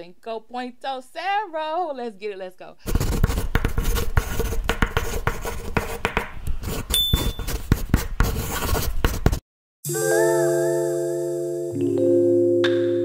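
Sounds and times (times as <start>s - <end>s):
pen scratching while writing: 2.8s - 9.4s
bell-like mallet music: 9.9s - 13.0s.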